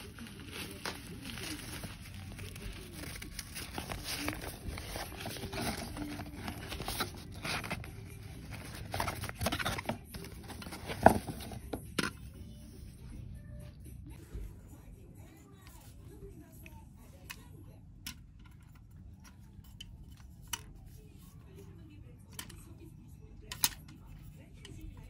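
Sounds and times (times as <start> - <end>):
nylon bag rustling and scraping: 0.0 - 11.6.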